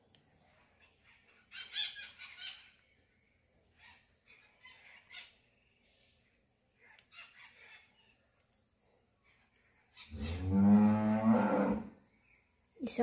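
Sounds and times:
ox mooing: 10.1s - 12.0s.

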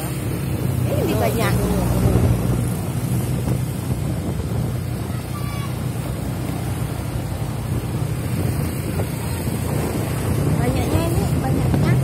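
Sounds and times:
vehicle road noise: 0.0s - 12.0s
wind on microphone: 0.0s - 12.0s.

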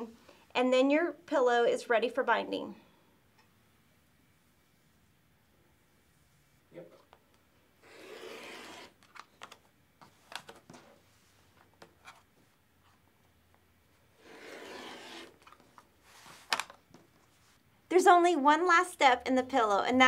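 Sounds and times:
rotary cutter slicing fabric: 7.8s - 9.0s, 14.2s - 15.6s
clicks and rustles of ruler and fabric: 14.4s - 17.6s.

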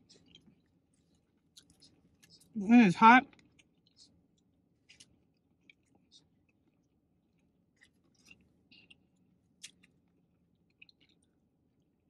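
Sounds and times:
chewing food: 0.0s - 2.6s, 3.2s - 12.0s
wet mouth clicks and smacks: 9.6s - 10.0s, 10.7s - 11.3s.

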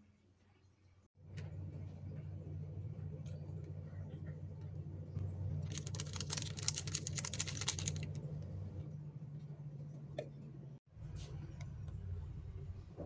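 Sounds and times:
low hum: 1.2s - 13.0s
plastic sachet crinkling and tapping: 5.7s - 8.2s.

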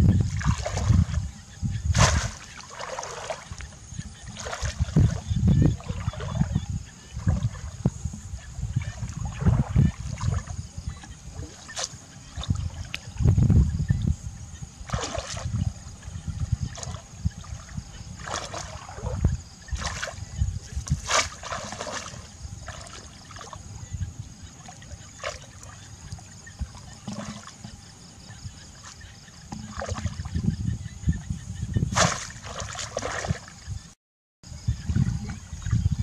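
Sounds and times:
person wading through water: 0.2s - 1.3s, 1.9s - 7.9s, 8.7s - 13.3s, 14.8s - 23.8s, 24.5s - 30.6s, 32.0s - 33.7s
shallow water splashing: 0.3s - 13.4s, 14.8s - 23.8s, 24.4s - 30.6s, 31.9s - 33.8s.

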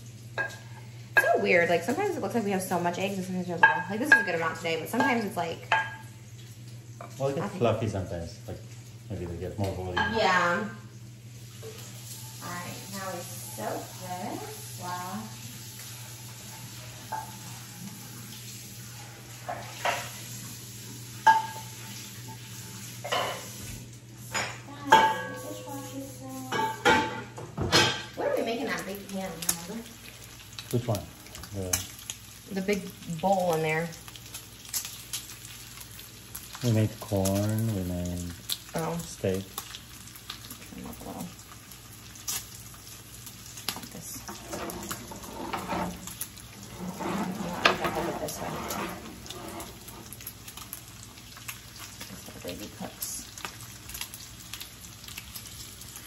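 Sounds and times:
bacon sizzling: 0.0s - 56.0s
frying pan being washed: 11.4s - 30.0s, 43.8s - 51.2s.

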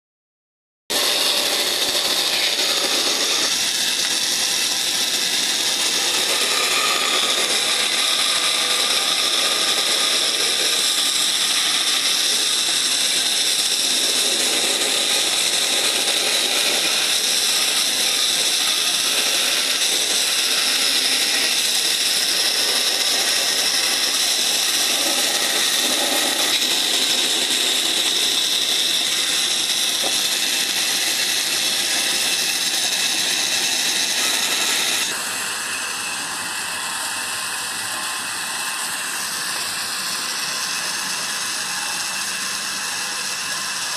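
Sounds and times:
band saw cutting wood: 0.9s - 43.9s.

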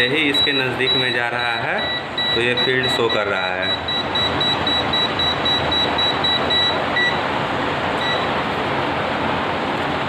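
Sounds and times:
voltage detector beeping: 0.2s - 7.2s, 8.0s - 8.3s.

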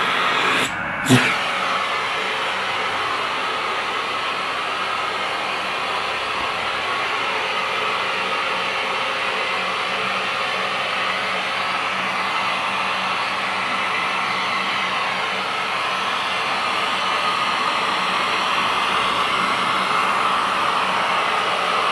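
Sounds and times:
vacuum cleaner running: 0.0s - 21.9s.

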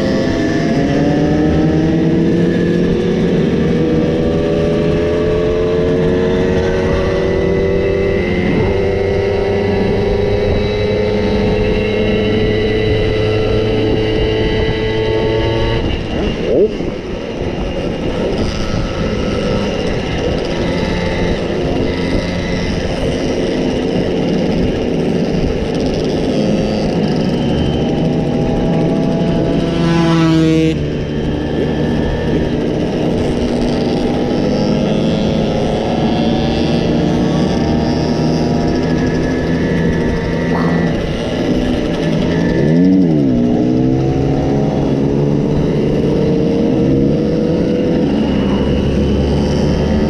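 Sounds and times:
moped engine revving: 0.0s - 50.0s
moped engines running: 0.0s - 50.0s.

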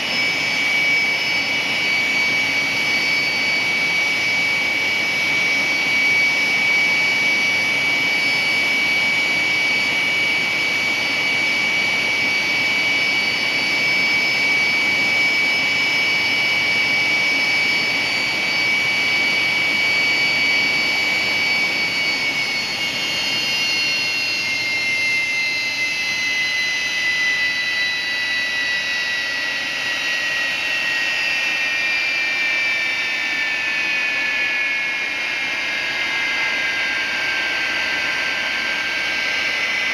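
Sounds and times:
high compressor whine: 0.0s - 39.9s
turbine engine roar: 0.0s - 39.9s.

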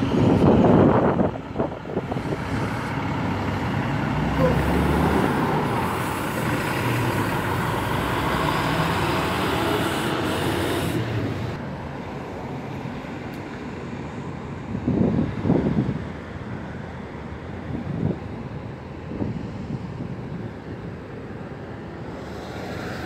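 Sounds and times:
heavy vehicle engine passing: 0.0s - 13.2s, 21.0s - 23.0s.

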